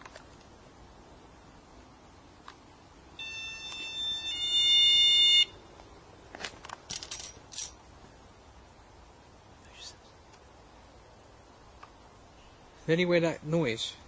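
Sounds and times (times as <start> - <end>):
electronic alarm tone: 3.2 - 5.6.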